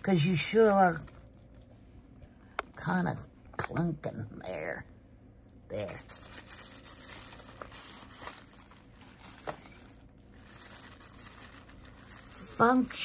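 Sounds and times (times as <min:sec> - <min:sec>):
packaging crinkling: 0:00.0 - 0:01.8, 0:05.8 - 0:13.0.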